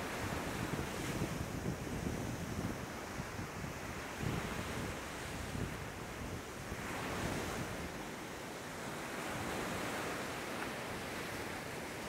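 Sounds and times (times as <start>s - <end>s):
wind buffeting microphone: 0.0s - 8.0s
small waves washing on beach: 0.0s - 12.0s.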